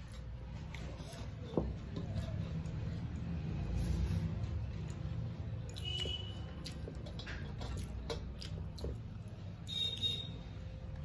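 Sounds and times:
chewing: 0.0 - 10.4.

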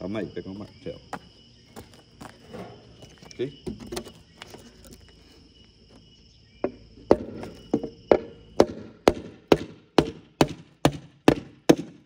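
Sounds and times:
hammer striking wood: 6.6 - 12.0.

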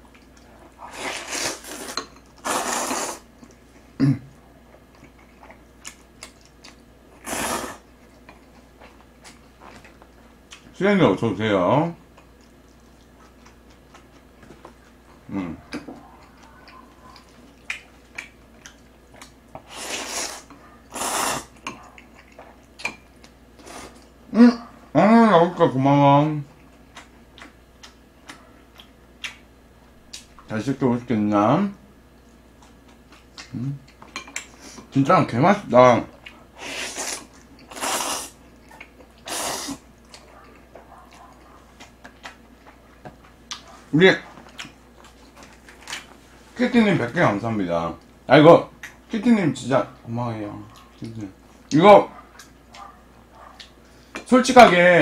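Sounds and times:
chewing: 0.0 - 2.4, 3.4 - 6.9, 7.8 - 10.7, 12.1 - 24.7, 26.5 - 29.4, 32.2 - 34.9, 36.1 - 46.2, 50.6 - 54.2
slurping noodles: 0.8 - 3.2, 7.2 - 7.8, 19.6 - 21.5, 36.6 - 38.4, 39.3 - 39.8.

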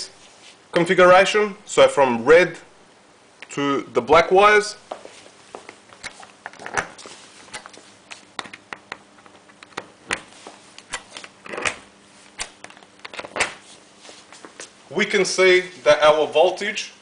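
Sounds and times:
faint steady hum: 0.0 - 17.0
scuffles: 0.1 - 0.7, 4.8 - 8.4, 10.2 - 11.4, 13.4 - 16.2.

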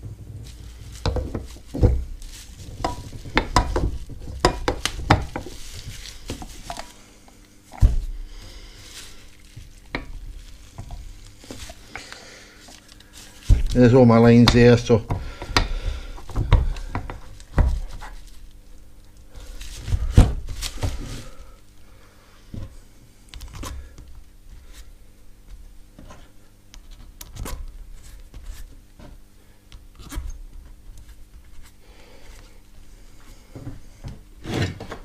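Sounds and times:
faint steady hum: 0.0 - 35.0
knocks and clicks of handling: 0.4 - 6.9.

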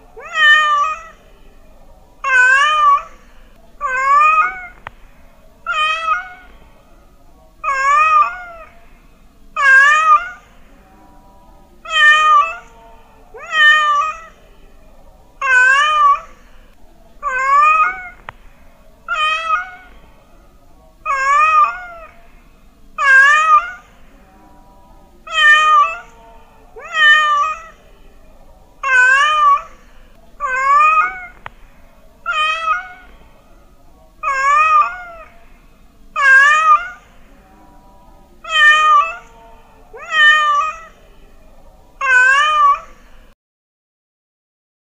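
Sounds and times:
cat meowing: 0.2 - 1.2, 2.2 - 3.2, 3.8 - 4.8, 5.7 - 6.6, 7.6 - 8.7, 9.6 - 10.4, 11.9 - 12.7, 13.4 - 14.4, 15.4 - 16.4, 17.2 - 18.2, 19.1 - 20.0, 21.0 - 22.2, 23.0 - 23.9, 25.3 - 26.1, 26.8 - 27.8, 28.8 - 29.8, 30.4 - 31.4, 32.2 - 33.2, 34.2 - 35.3, 36.2 - 37.1, 38.4 - 39.3, 40.0 - 41.0, 42.0 - 43.0.

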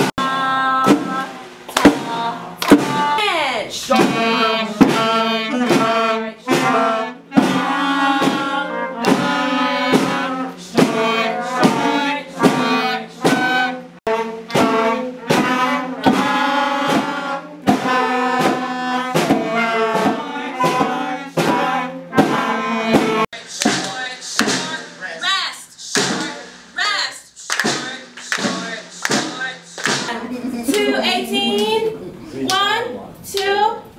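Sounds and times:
wind band playing: 3.8 - 23.3.

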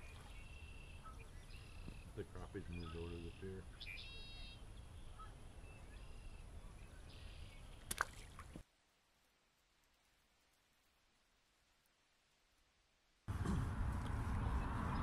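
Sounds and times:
faint bird calls: 0.0 - 8.4.

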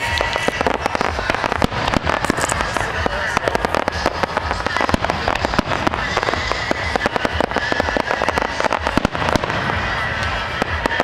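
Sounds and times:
fireworks pops and bangs: 0.0 - 11.0.

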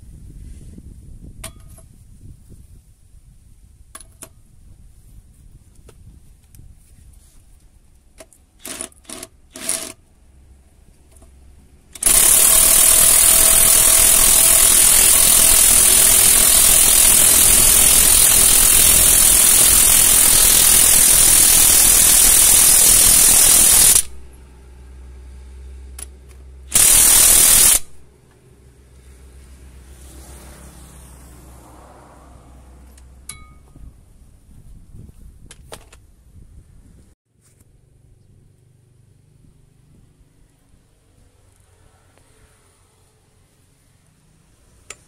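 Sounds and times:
impact wrench hammering on bolt: 12.0 - 24.2, 26.7 - 27.9.

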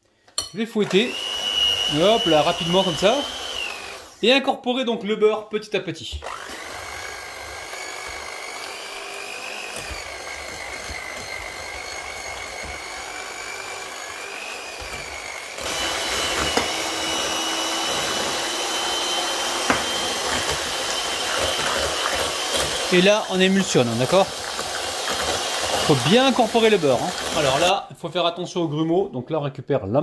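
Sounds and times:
electric hand mixer whining: 0.8 - 4.2, 6.1 - 27.8.

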